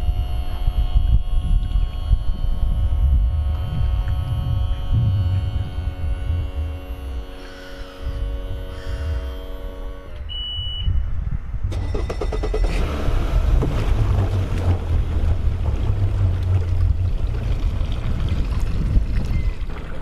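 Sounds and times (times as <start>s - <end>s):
low rumble: 0.0s - 7.4s, 10.9s - 20.0s
wind and water noise: 0.0s - 9.5s, 10.2s - 20.0s
electronic drone: 0.0s - 10.4s
high beep: 10.3s - 11.0s.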